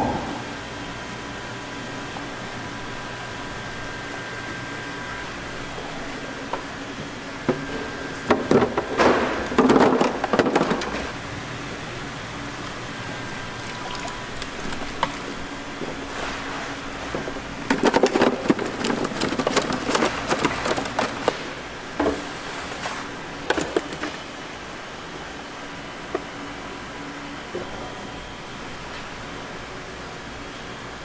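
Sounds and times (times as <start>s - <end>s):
water splashing and trickling: 13.4s - 15.4s
lobster shells rattling in plastic crate: 17.7s - 21.5s.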